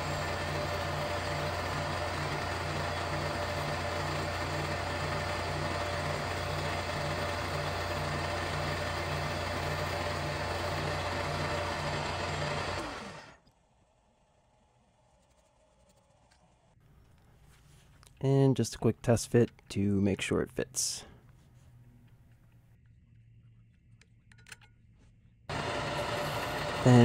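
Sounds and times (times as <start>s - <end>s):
milling machine humming: 0.0s - 13.4s, 25.5s - 27.0s.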